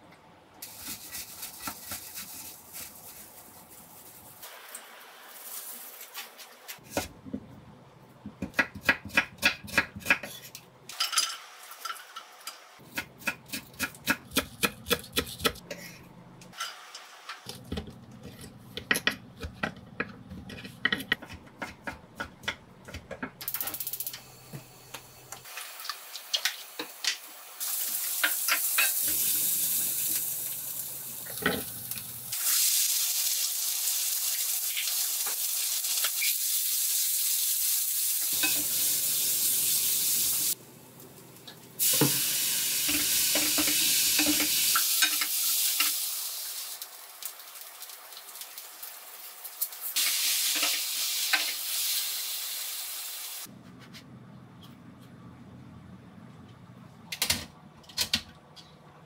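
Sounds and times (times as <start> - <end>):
food sizzling in wok: 0.6 - 6.5, 25.4 - 40.6, 41.7 - 53.5.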